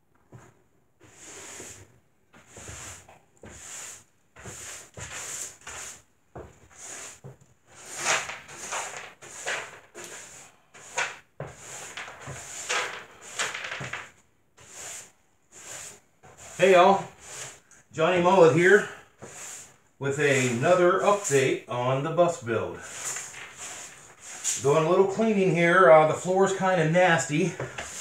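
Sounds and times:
broom sweeping wooden floor: 0.3 - 28.0.

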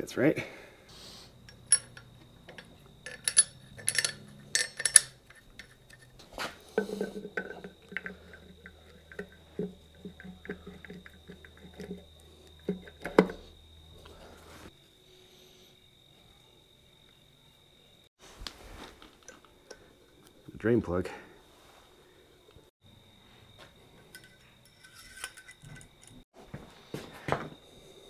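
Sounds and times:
steel gear parts clinking: 1.4 - 6.2, 24.0 - 26.2.

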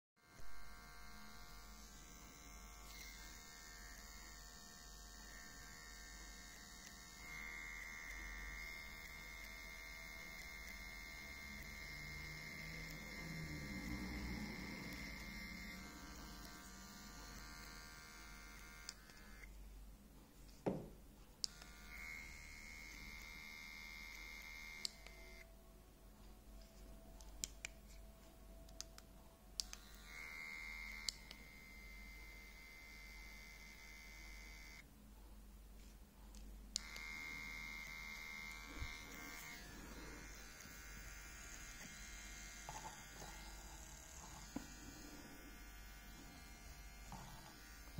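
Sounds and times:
small electric motor whirring: 0.2 - 19.5, 21.4 - 25.5, 29.6 - 34.8, 36.7 - 47.9.

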